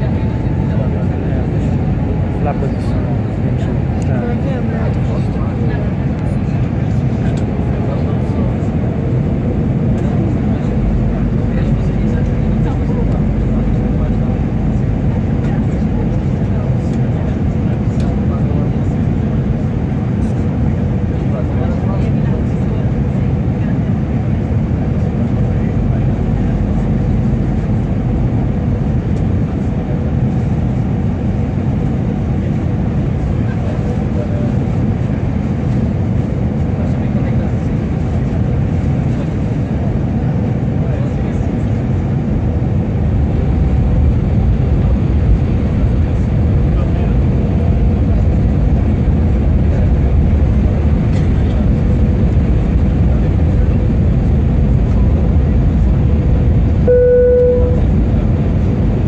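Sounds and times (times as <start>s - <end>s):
airliner engines rumbling: 0.0s - 59.0s
faint steady hum: 56.8s - 58.2s.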